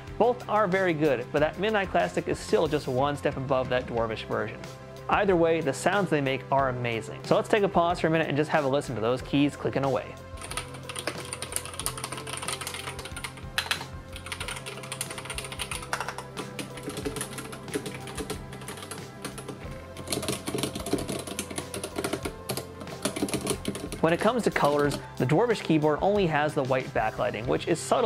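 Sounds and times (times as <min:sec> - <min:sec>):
quiet background music: 0:00.0 - 0:28.0
fast typing on mechanical keyboard: 0:10.4 - 0:24.1.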